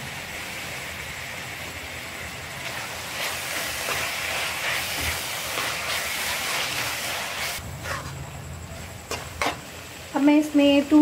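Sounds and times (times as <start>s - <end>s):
food sizzling in a pan: 0.0s - 11.0s
spoon scraping a pan: 2.6s - 8.3s, 9.1s - 9.7s.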